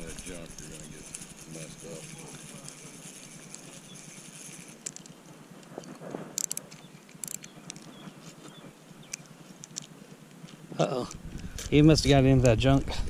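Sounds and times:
fishing reel clicking: 0.0 - 5.2, 6.4 - 7.8.

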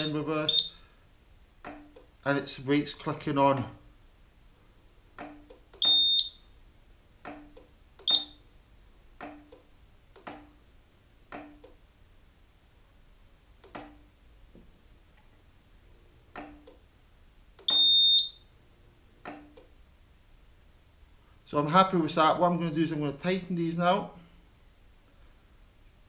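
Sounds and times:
electronic beeper: 0.0 - 0.8, 8.1 - 8.4.

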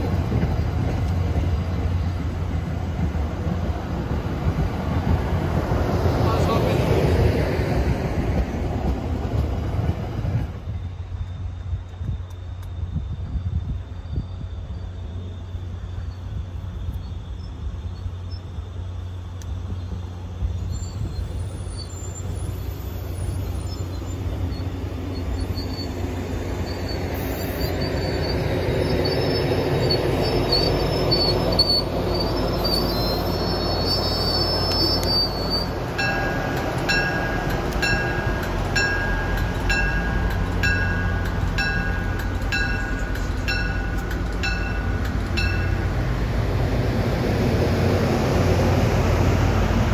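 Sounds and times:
train wheels rumbling on rails: 0.0 - 49.9
high wheel squeal: 19.7 - 46.0.

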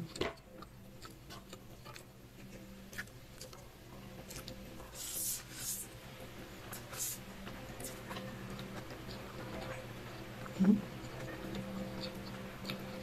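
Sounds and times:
wet chewing: 0.0 - 3.6, 7.8 - 13.0.

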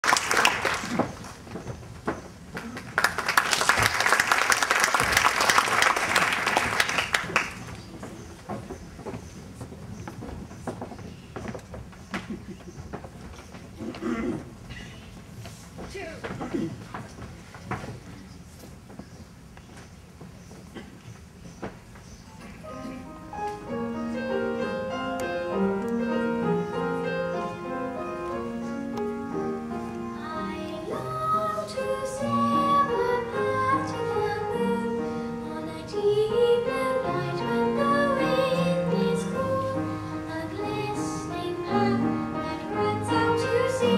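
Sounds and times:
audience applauding: 0.0 - 1.4, 2.6 - 7.9
piano playing: 22.3 - 43.9.

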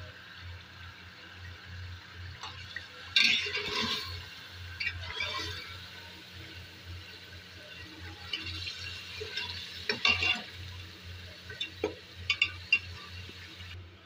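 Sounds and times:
food sizzling in oil: 0.1 - 13.8
spoon scraping a metal pot: 3.2 - 4.2, 4.8 - 5.8, 8.3 - 10.6.

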